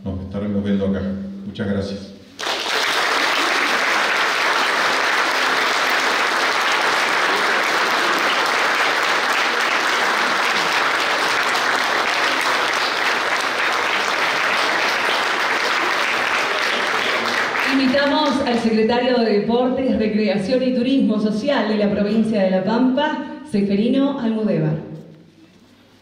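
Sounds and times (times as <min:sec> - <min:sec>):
audience applauding: 0:02.4 - 0:18.7.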